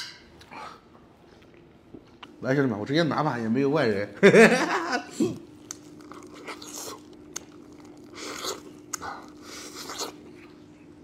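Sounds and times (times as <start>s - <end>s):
faint steady hum: 0.0s - 11.0s
man chewing food: 5.1s - 10.8s.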